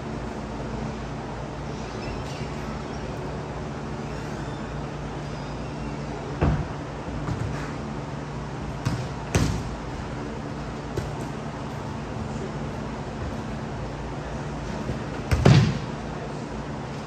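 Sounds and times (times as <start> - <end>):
steady low hum: 0.0 - 17.0
ball thuds: 8.8 - 9.8.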